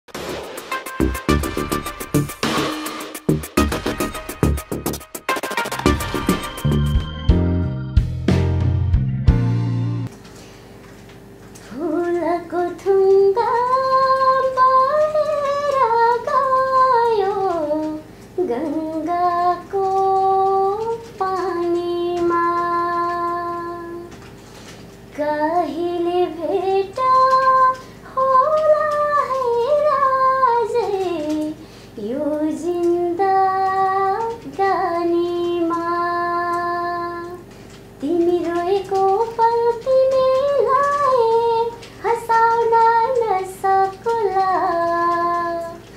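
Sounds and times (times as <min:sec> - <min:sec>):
woman singing unaccompanied: 0:11.6 - 0:24.2, 0:25.1 - 0:45.9.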